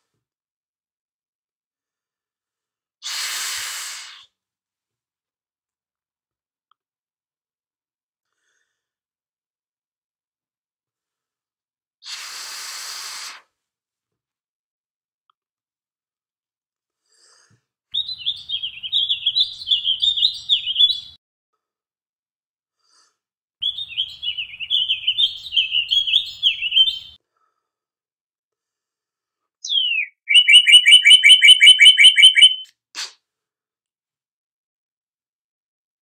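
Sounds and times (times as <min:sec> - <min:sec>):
shrill warbling whistle blasts: 0:29.7 - 0:32.7.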